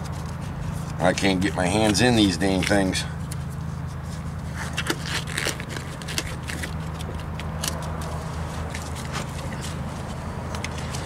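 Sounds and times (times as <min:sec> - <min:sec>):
steady low hum: 0:00.0 - 0:11.0
rubber gloves crackling and snapping: 0:04.6 - 0:09.0.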